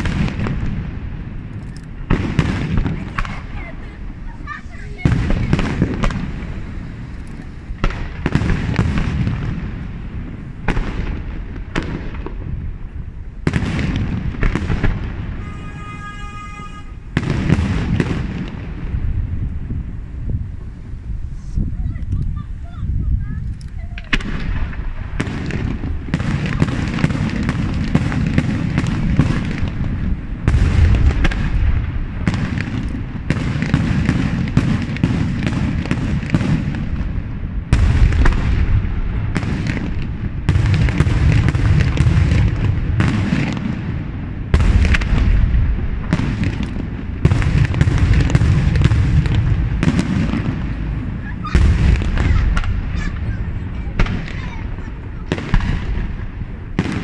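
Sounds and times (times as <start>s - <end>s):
heavy firework booms: 0.0s - 57.0s
firework shells bursting: 23.4s - 57.0s.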